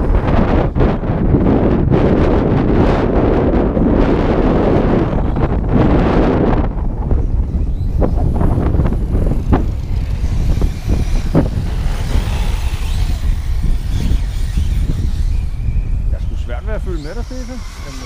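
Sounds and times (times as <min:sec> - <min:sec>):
wind on microphone: 0:00.0 - 0:18.0
electric motor whine: 0:03.7 - 0:18.0.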